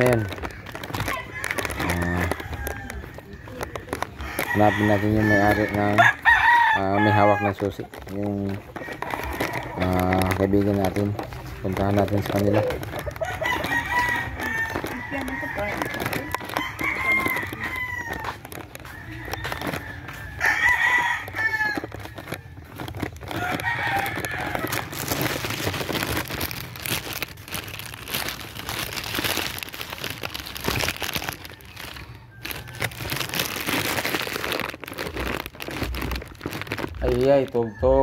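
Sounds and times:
rough scuffing and rustling: 0.0 - 24.9
roosters crowing: 0.0 - 38.0.

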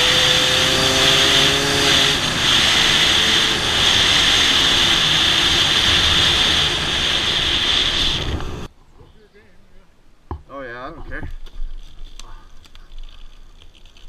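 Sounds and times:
dirt bike engine: 0.0 - 8.7.

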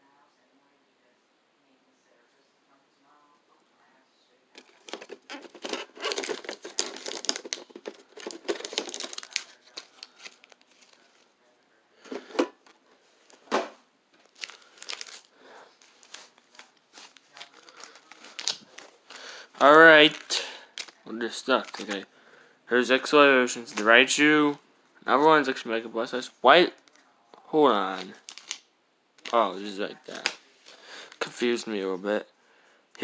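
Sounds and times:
plastic wrappers crinkling: 4.6 - 11.3, 14.1 - 22.0, 27.9 - 31.4.

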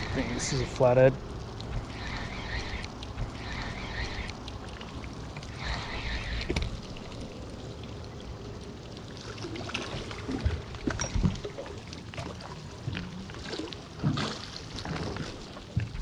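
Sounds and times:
water sloshing and splashing: 0.0 - 16.0.

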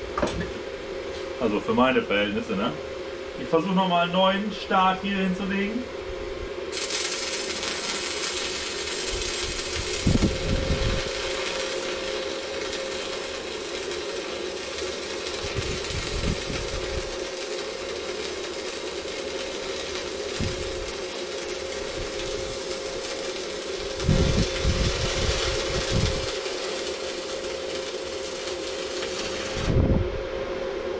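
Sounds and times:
welding arc hissing: 6.6 - 29.8.

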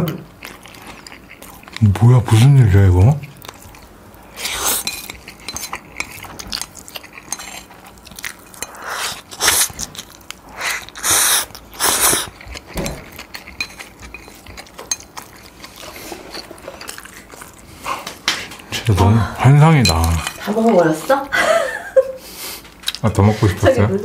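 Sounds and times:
chewing: 0.3 - 2.4, 3.1 - 21.3, 22.6 - 23.1
person slurping noodles: 10.6 - 12.3.

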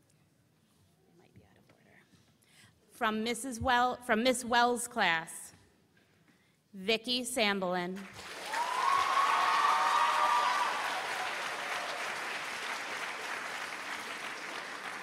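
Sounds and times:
audience applauding: 8.0 - 15.0
high cheer: 8.2 - 15.0.

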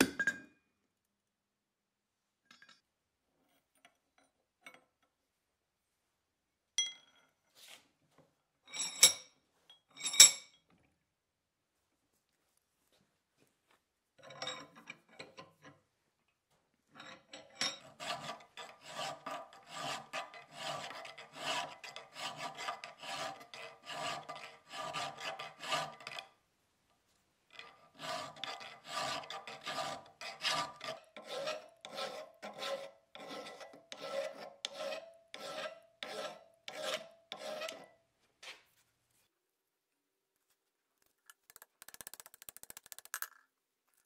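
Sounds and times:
file rasping on steel: 17.6 - 26.3, 27.6 - 38.0.

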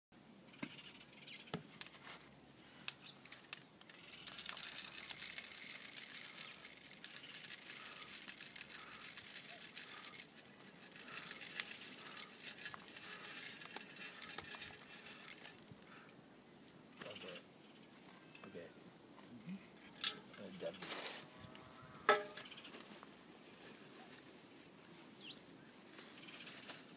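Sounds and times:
peppers crackling in a hot pot: 3.2 - 16.0.

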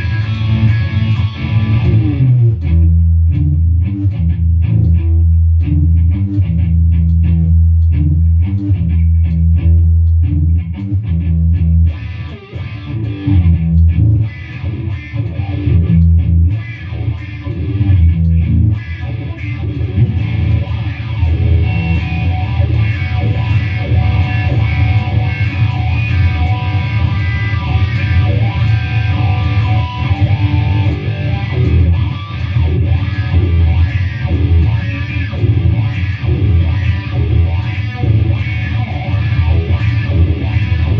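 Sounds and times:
electric guitar: 0.0 - 40.9
rock music with strong bass: 0.0 - 40.9.

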